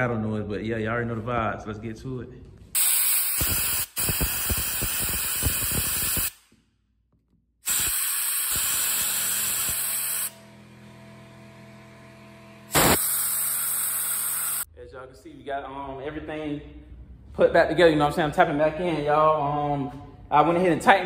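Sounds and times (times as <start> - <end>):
compressed air hissing: 2.8 - 6.4, 7.6 - 10.3, 12.7 - 14.7.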